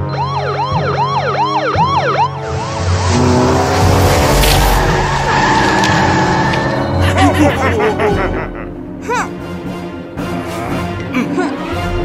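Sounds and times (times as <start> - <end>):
cartoon police sirens wailing: 0.0 - 3.2.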